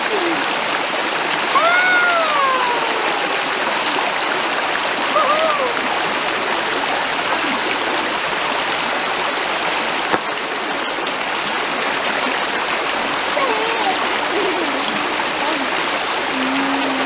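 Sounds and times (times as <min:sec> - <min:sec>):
water rushing over stones: 0:00.0 - 0:17.0.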